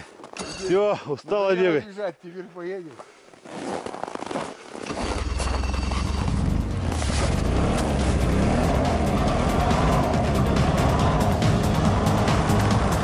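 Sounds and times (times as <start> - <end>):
snowmobile engine drone: 4.9 - 13.0.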